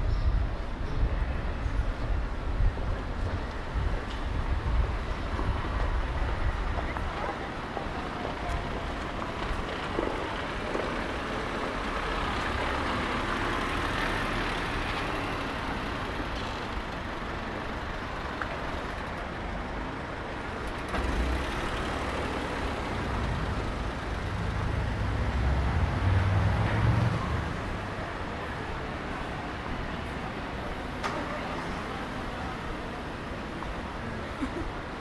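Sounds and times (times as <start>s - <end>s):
heavy vehicle rumble: 0.0s - 35.0s
road traffic noise: 0.0s - 35.0s.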